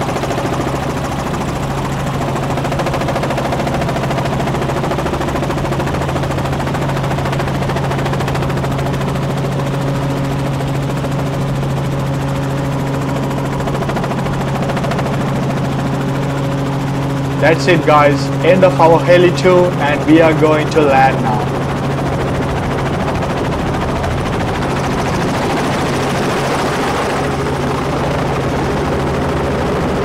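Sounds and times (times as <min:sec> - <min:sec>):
helicopter rotor blades beating: 0:00.0 - 0:30.0
higher engine tone: 0:17.2 - 0:22.5.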